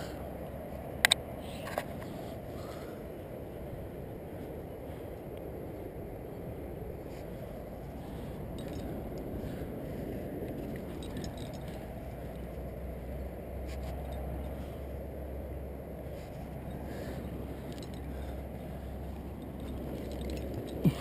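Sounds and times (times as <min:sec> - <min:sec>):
wind rumble on microphone: 0:00.0 - 0:21.0
faint metallic clinks: 0:08.1 - 0:09.7, 0:10.5 - 0:15.0, 0:16.0 - 0:21.0.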